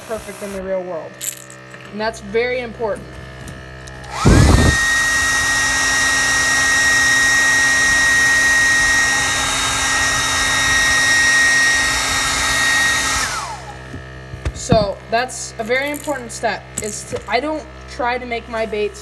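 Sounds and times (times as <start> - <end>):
hot-air dryer whine: 3.4 - 15.0.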